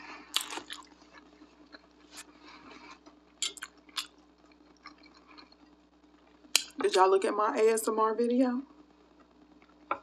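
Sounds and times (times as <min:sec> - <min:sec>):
faint room hiss: 0:00.0 - 0:10.0
wet mouth clicks and smacks: 0:03.4 - 0:05.2.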